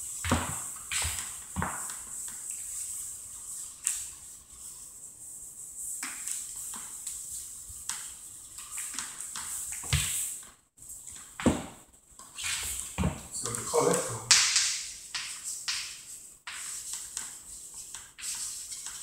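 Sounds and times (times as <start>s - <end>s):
eraser wiping blackboard: 0.0s - 10.5s, 14.7s - 19.0s.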